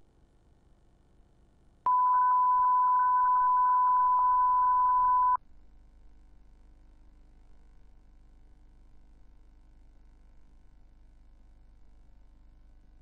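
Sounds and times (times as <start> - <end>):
faint low hum: 0.0 - 13.0
steady test tone beep: 1.9 - 5.4.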